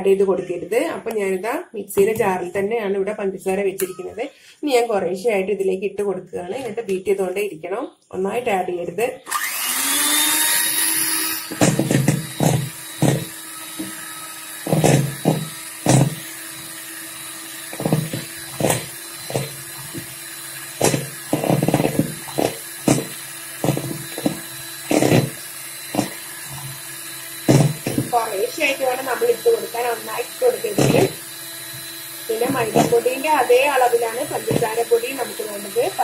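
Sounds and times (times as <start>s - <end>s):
electric hand mixer whisking: 9.3s - 36.0s.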